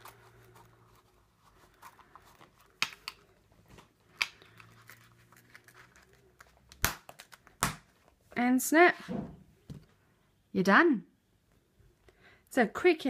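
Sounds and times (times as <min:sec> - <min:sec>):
leather rustling: 0:00.0 - 0:06.5.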